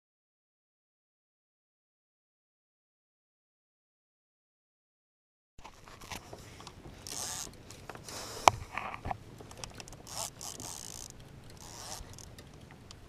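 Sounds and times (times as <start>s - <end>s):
fishing reel buzzing: 6.0s - 8.8s, 9.7s - 12.4s.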